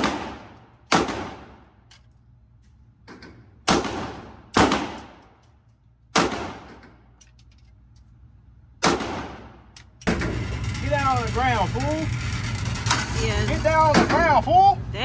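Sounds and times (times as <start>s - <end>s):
pistol shots echoing indoors: 0.0s - 1.8s, 3.6s - 5.5s, 6.1s - 7.0s, 8.8s - 9.7s.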